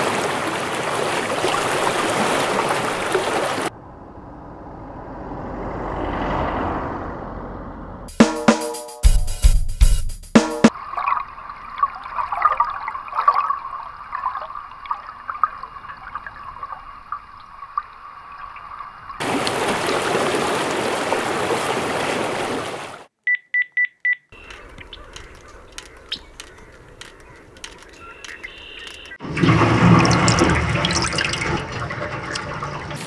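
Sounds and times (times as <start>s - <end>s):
faint crackling clicks: 24.4s - 29.2s
ticks: 24.4s - 29.2s.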